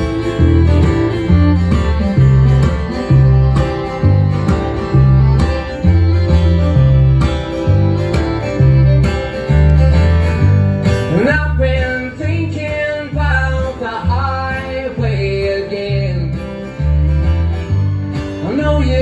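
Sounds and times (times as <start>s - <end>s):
fiddle: 0.0s - 19.0s
strummed acoustic guitar: 0.0s - 19.0s
upright bass: 0.0s - 19.0s
man singing: 11.1s - 16.7s, 18.4s - 19.0s.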